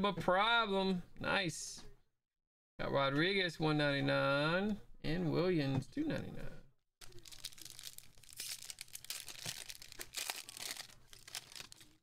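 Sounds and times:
foil wrapper crinkling: 0:07.0 - 0:12.0.

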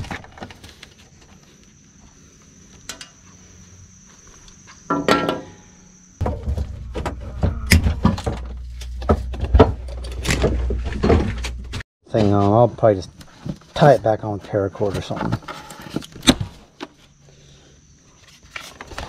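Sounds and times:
steady low rumble: 0:06.0 - 0:11.8.

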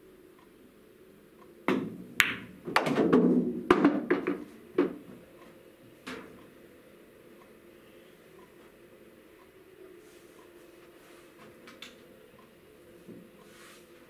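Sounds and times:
cue striking ball: 0:01.7 - 0:05.0
balls knocking cushions: 0:01.7 - 0:05.1
pool balls clicking: 0:01.7 - 0:05.2.

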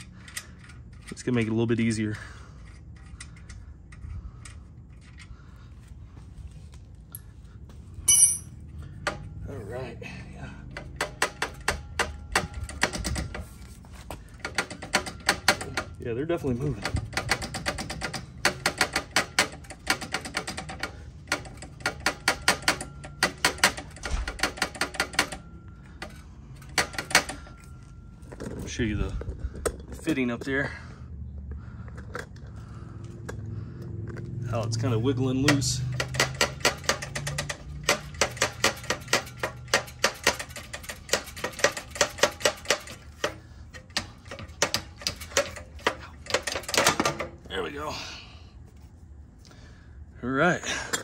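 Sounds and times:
muffler clacking metal on metal: 0:16.7 - 0:27.6, 0:35.3 - 0:47.4.

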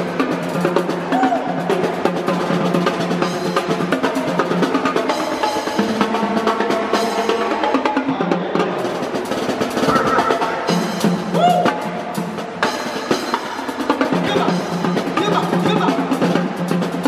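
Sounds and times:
drum-driven music: 0:00.0 - 0:17.0
fast snare rolls: 0:09.0 - 0:11.8.

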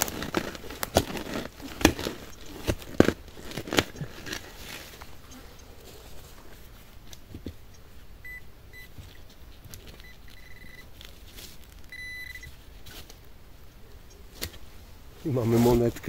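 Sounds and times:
soil scraping and rustling: 0:00.0 - 0:07.6, 0:08.9 - 0:13.4, 0:14.3 - 0:16.0
metal detector beeping: 0:07.7 - 0:09.0, 0:10.0 - 0:10.9, 0:11.9 - 0:12.6.

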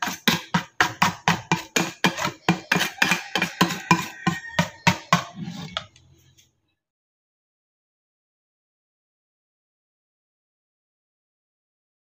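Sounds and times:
whisk clanking in metal bowl: 0:00.0 - 0:05.9.

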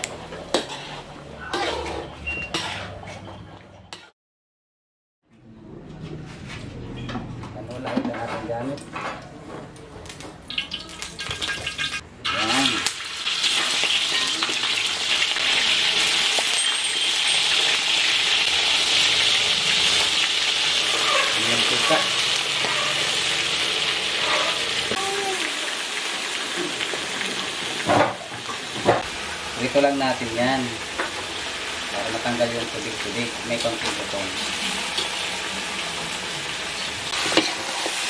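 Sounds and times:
chicken sizzling in hot oil: 0:10.5 - 0:38.0.

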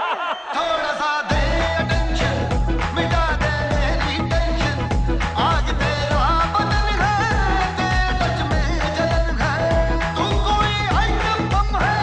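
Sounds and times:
dance song with steady beat: 0:00.0 - 0:12.0.

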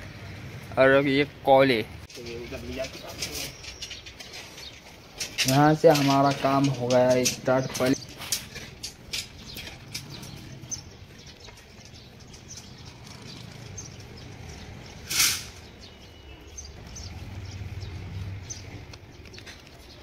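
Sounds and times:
loud hissing clatter: 0:14.9 - 0:15.7.

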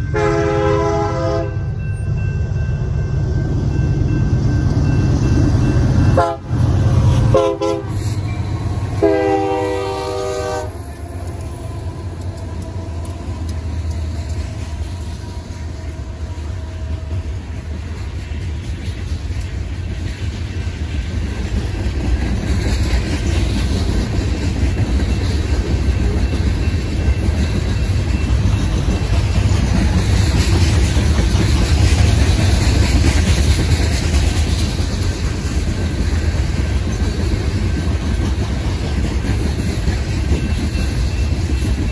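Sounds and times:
locomotive horn chord: 0:00.0 - 0:01.7, 0:06.1 - 0:08.0, 0:08.9 - 0:11.1
train wheels rumbling on rail: 0:00.0 - 0:41.9.

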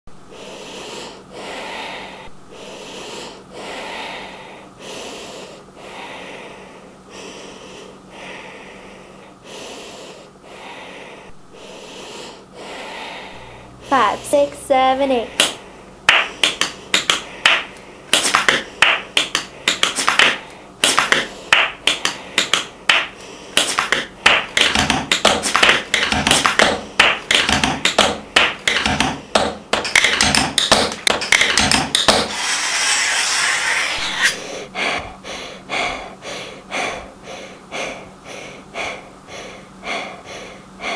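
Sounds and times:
tap shoes striking hard floor: 0:15.4 - 0:32.3
hissy rush: 0:32.3 - 0:34.6.

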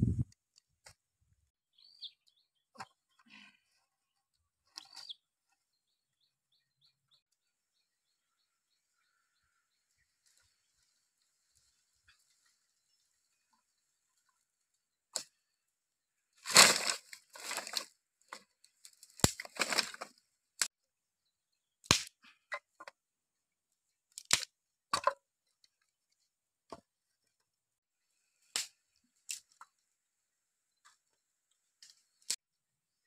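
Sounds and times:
sticks snapping and clattering: 0:16.4 - 0:20.2, 0:24.1 - 0:25.2, 0:28.5 - 0:29.7.

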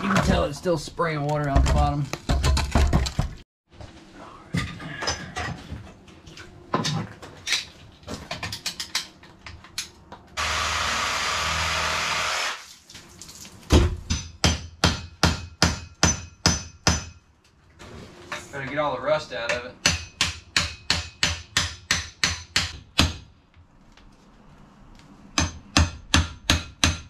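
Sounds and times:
hammer striking steel casing: 0:14.0 - 0:17.2, 0:19.5 - 0:23.3.

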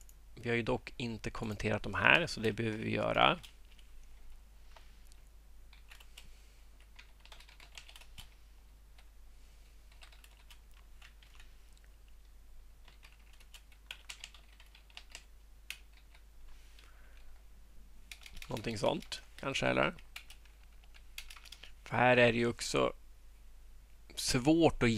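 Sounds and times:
low steady hum: 0:00.0 - 0:24.9
typing on keyboard: 0:05.7 - 0:08.4, 0:09.9 - 0:11.5, 0:12.8 - 0:16.2, 0:18.1 - 0:21.7.

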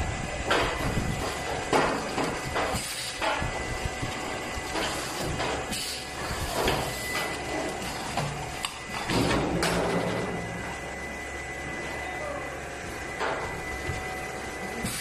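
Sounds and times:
machine mechanical hum: 0:00.0 - 0:15.0
pneumatic hissing bursts: 0:05.7 - 0:06.1, 0:14.8 - 0:15.0.

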